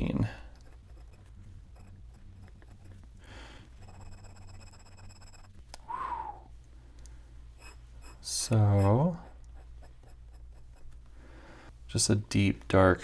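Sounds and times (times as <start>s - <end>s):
pen nib scratching on paper: 0.4s - 5.6s, 7.6s - 11.0s.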